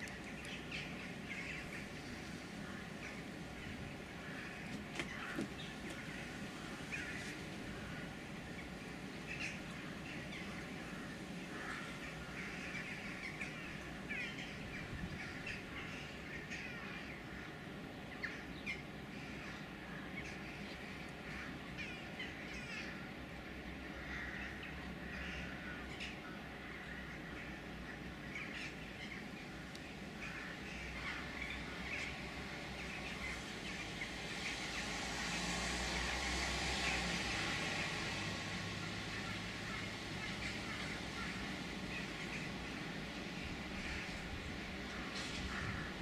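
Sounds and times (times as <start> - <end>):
crows cawing: 2.6 - 8.3, 9.3 - 14.6, 21.2 - 23.0, 23.9 - 32.1, 39.1 - 42.8, 43.6 - 46.0.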